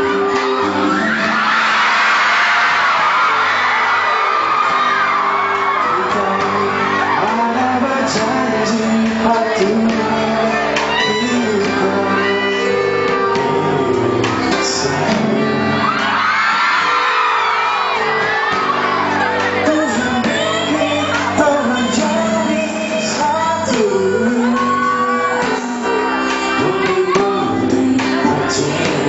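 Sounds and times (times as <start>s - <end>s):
person singing: 0.0s - 1.7s, 4.9s - 17.1s, 18.0s - 29.0s
audience shouting and whooping: 0.0s - 8.8s, 9.5s - 29.0s
live pop ballad: 0.0s - 29.0s.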